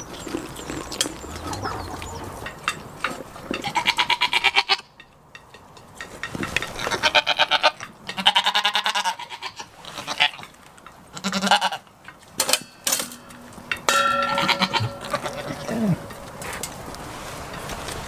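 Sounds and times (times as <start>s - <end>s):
goats bleating: 3.6s - 4.8s, 11.1s - 11.9s, 14.2s - 16.4s.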